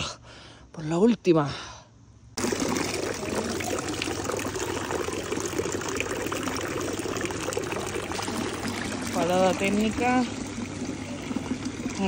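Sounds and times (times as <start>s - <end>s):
water pouring into bottle: 2.4s - 12.0s
water splashing into stone trough: 2.4s - 12.0s.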